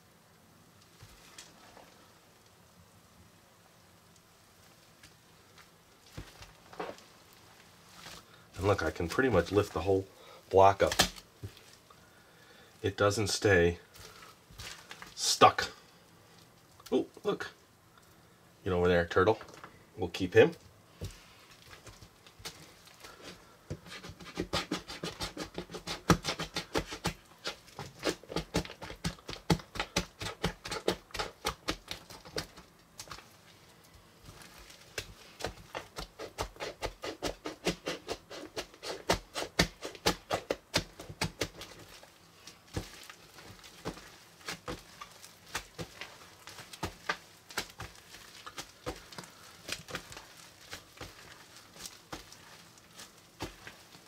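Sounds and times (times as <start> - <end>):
slime crackling and popping: 23.9 - 33.5, 34.2 - 54.0.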